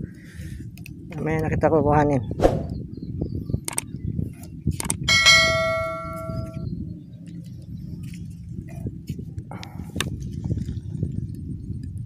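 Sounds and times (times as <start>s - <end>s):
low rumble: 2.2s - 2.9s
bright bell chime: 5.1s - 6.6s.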